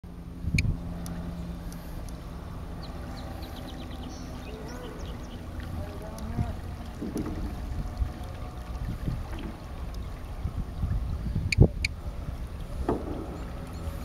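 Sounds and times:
water rumbling: 0:00.0 - 0:14.0
wind: 0:00.0 - 0:14.0
thump: 0:12.8 - 0:13.4.

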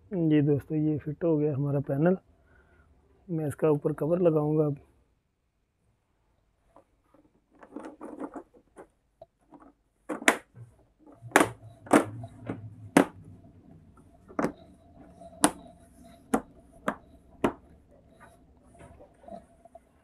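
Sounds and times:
soft handling noises: 0:06.2 - 0:20.0.

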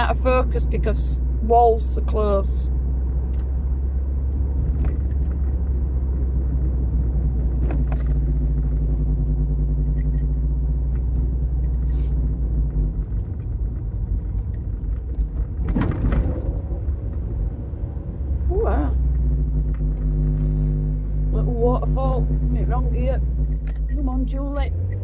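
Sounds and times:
car engine from inside cabin: 0:00.0 - 0:25.0
road noise: 0:00.0 - 0:25.0
light clicks or rattles: 0:03.3 - 0:06.6, 0:07.4 - 0:18.2, 0:23.3 - 0:25.0.

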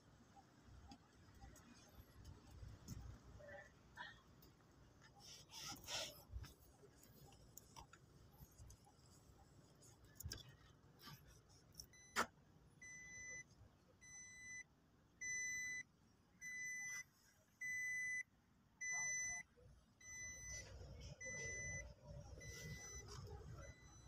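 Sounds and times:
dashboard warning chime beeping: 0:11.8 - 0:14.6, 0:15.2 - 0:15.8, 0:16.4 - 0:17.0, 0:17.6 - 0:18.2, 0:18.8 - 0:24.0.

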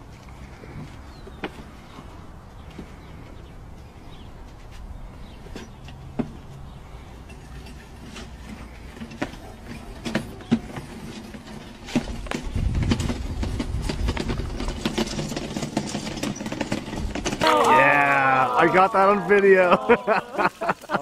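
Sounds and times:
hooves knocking on plastic cart: 0:08.1 - 0:19.6.

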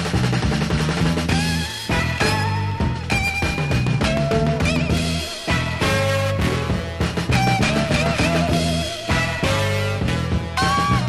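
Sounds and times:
electric blues band playing: 0:00.0 - 0:11.0.

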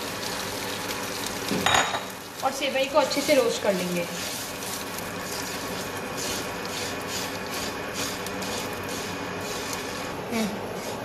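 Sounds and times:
spatula scraping a frying pan: 0:02.9 - 0:11.0.

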